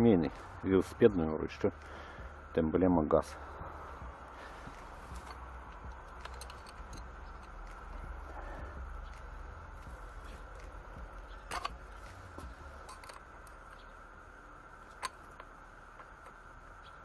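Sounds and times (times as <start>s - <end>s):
wrench clinking on metal: 5.1s - 8.2s, 11.3s - 11.9s, 12.8s - 13.8s.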